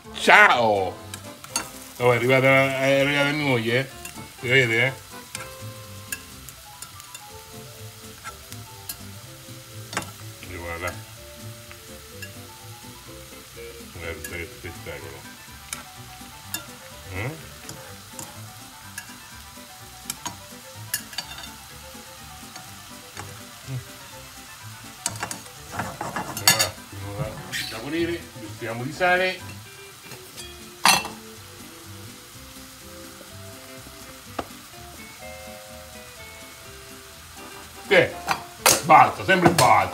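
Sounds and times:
fish sizzling in a pan: 0:00.0 - 0:39.9
sauce bubbling: 0:00.0 - 0:39.9
metal tongs clicking on pan: 0:01.1 - 0:01.8, 0:04.0 - 0:04.2, 0:05.3 - 0:07.3, 0:08.2 - 0:09.1, 0:09.9 - 0:10.2, 0:12.2 - 0:12.4, 0:15.7 - 0:15.9, 0:16.5 - 0:16.8, 0:17.6 - 0:19.2, 0:20.0 - 0:21.6, 0:25.0 - 0:26.8, 0:38.2 - 0:38.9.

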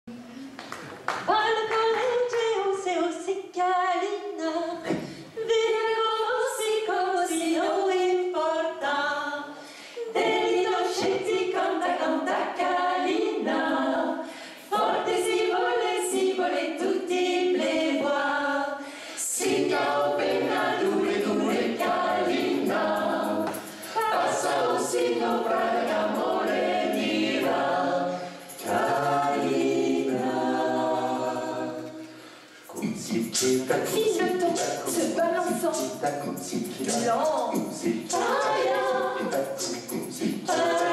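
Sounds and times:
female voices singing: 0:01.2 - 0:18.8, 0:19.4 - 0:32.0, 0:33.8 - 0:36.1, 0:36.8 - 0:40.9
male voices singing: 0:28.4 - 0:31.9, 0:32.7 - 0:40.9.

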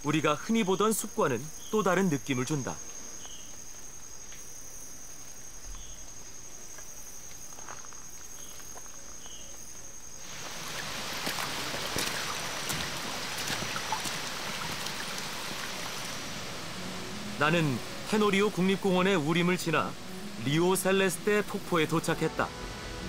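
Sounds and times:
insect trilling: 0:00.0 - 0:23.0
water rushing: 0:10.2 - 0:23.0.

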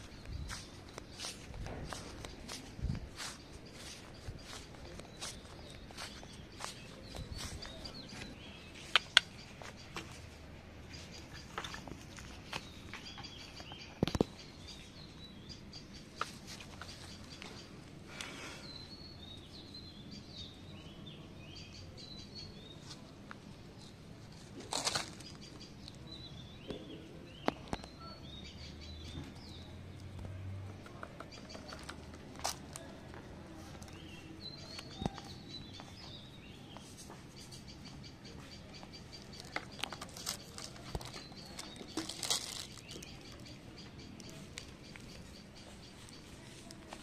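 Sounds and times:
small birds chirping: 0:00.0 - 0:47.0
sharp clicks: 0:08.8 - 0:09.5
rustle: 0:22.7 - 0:25.5.

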